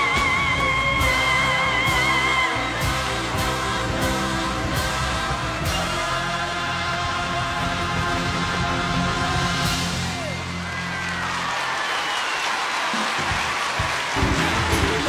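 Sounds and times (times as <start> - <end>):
live pop song with band: 0.0 - 10.4
steady drum beat: 0.0 - 10.6, 13.0 - 15.0.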